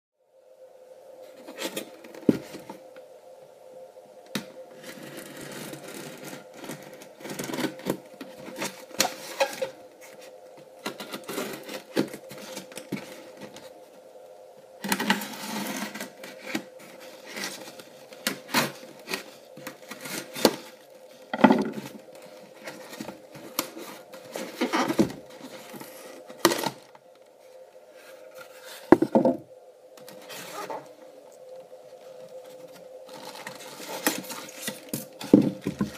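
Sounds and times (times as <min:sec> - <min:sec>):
faint steady hum: 0:00.2 - 0:35.9
plastic wrapping rustling: 0:04.7 - 0:13.9, 0:14.8 - 0:31.0, 0:32.0 - 0:35.9.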